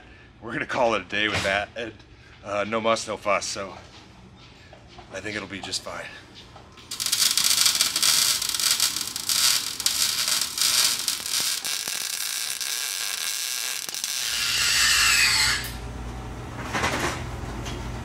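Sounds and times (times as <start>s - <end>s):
welding arc crackling: 6.9s - 15.8s.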